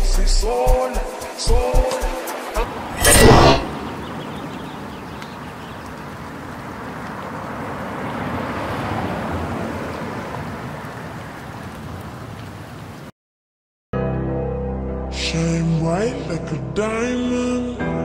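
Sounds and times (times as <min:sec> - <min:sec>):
loud hit: 0:03.0 - 0:03.7.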